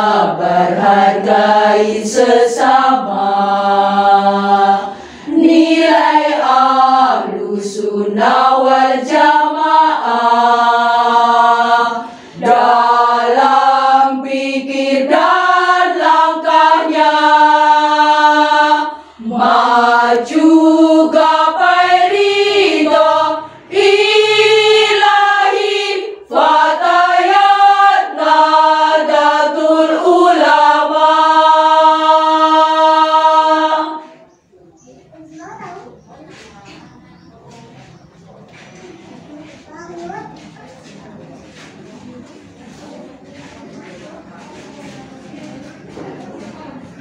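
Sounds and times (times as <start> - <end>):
women's choir singing: 0.0 - 34.5.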